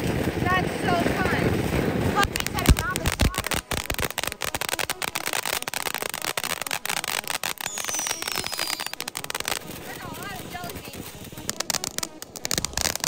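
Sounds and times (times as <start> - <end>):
firework fountain crackling: 0.0 - 13.0
falling whistle: 7.5 - 9.1.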